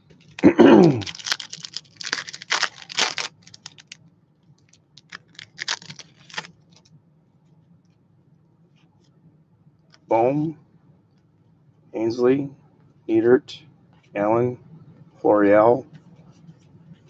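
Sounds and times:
cards and wrappers rustling: 0:00.2 - 0:04.0, 0:04.6 - 0:06.9.

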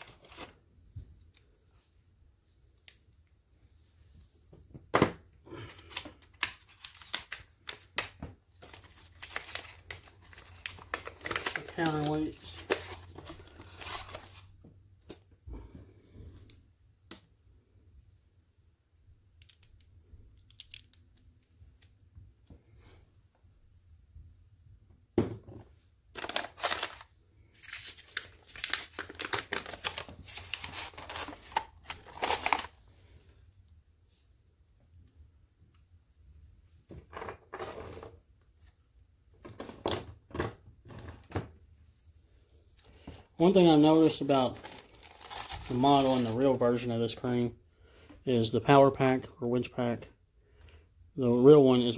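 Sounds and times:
packaging rustle: 0:05.7 - 0:08.0, 0:08.6 - 0:14.6, 0:26.1 - 0:32.8, 0:42.8 - 0:46.5.

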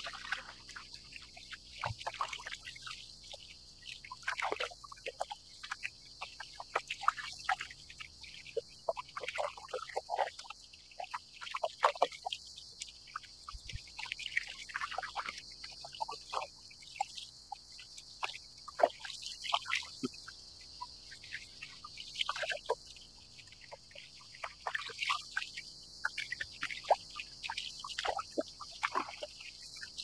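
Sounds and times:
water lapping against kayak hull: 0:27.9 - 0:29.3.

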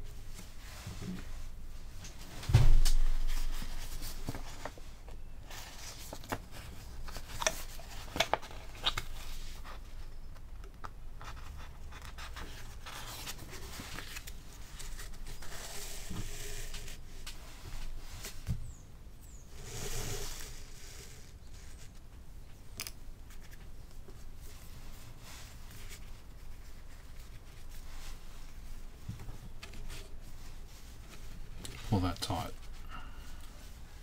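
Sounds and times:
paper rustling: 0:02.9 - 0:04.9, 0:05.5 - 0:09.8, 0:11.2 - 0:17.0.

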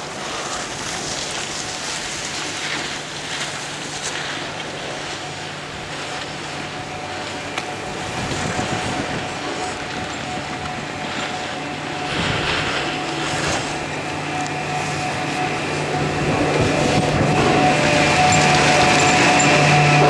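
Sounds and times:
chairlift mechanical hum: 0:00.0 - 0:20.0
rope and wheels rattling: 0:05.9 - 0:20.0.

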